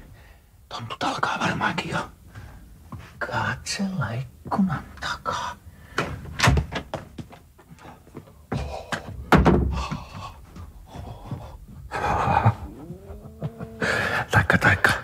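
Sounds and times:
knocks and thuds: 0:09.3 - 0:10.7.

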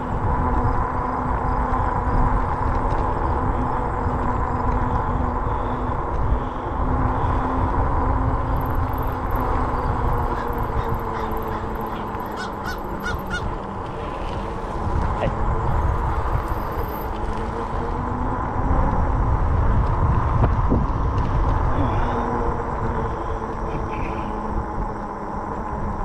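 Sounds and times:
bike tyre noise: 0:00.0 - 0:26.0
hub motor hum: 0:00.0 - 0:26.0
wind on microphone: 0:00.0 - 0:26.0
bird harsh calls: 0:10.3 - 0:13.5.

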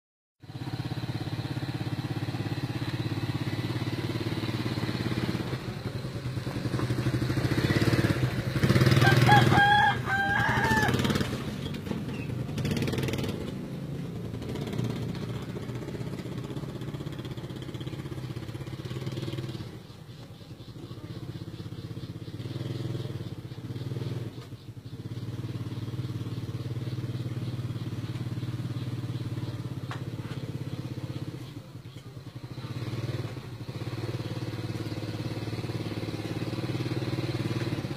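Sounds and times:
small motorcycle engine running: 0:00.4 - 0:37.9
rooster crowing: 0:08.8 - 0:11.3.

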